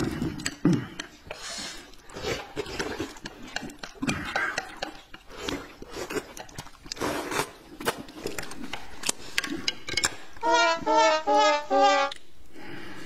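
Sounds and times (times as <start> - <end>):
person slurping food: 0.0 - 7.6.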